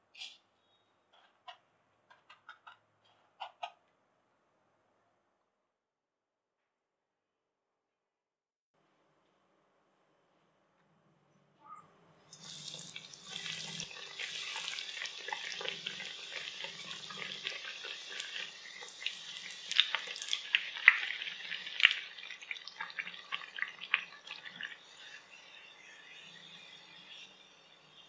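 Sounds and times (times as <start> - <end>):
bread deep-frying in oil: 12.3 - 27.2
oil crackling and popping: 12.4 - 24.9.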